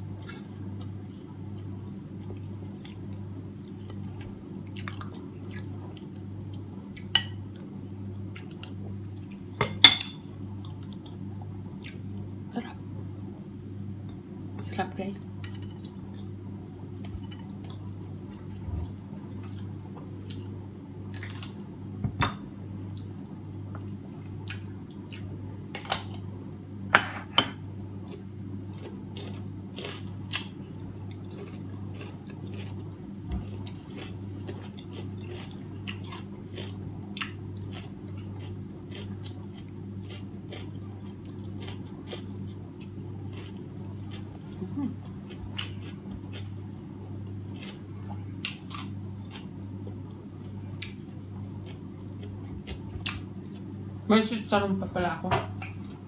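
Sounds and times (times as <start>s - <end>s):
low hum: 0.0s - 56.0s
person chewing: 24.4s - 25.3s, 28.0s - 53.7s.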